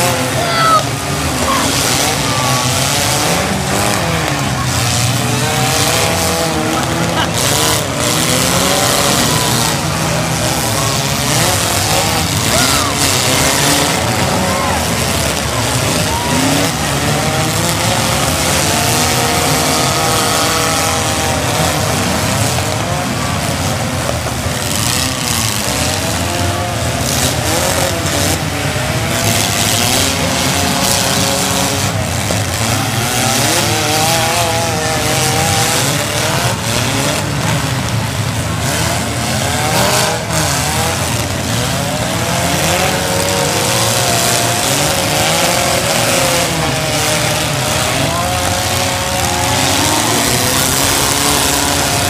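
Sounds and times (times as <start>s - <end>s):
car engines revving: 0.0s - 52.0s.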